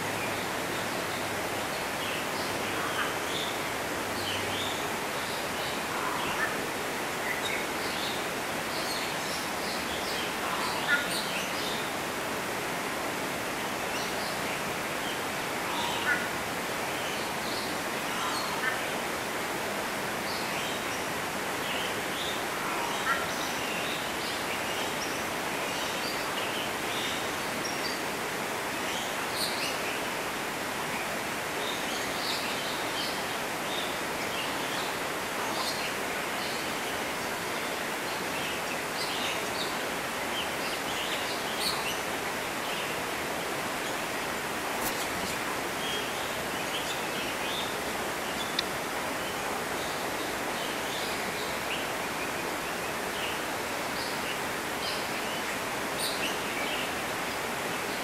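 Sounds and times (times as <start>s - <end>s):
outdoor background hiss: 0.0s - 58.0s
small birds chirping: 33.8s - 57.0s.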